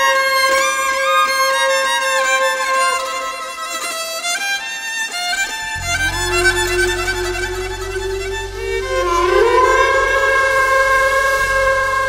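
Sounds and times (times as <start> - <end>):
deep low tone: 5.6 - 12.0
instrumental melody over held note: 5.6 - 12.0.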